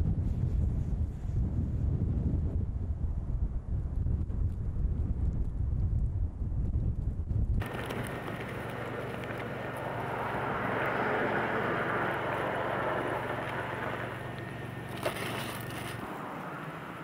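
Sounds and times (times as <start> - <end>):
blizzard wind gusting: 0.0 - 17.0
low steady hum: 7.1 - 17.0.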